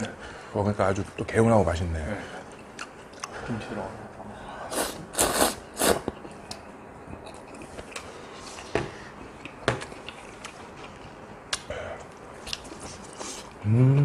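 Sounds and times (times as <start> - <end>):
chewing with smacking clicks: 2.5 - 3.4, 9.2 - 11.7
person slurping noodles: 4.7 - 6.1.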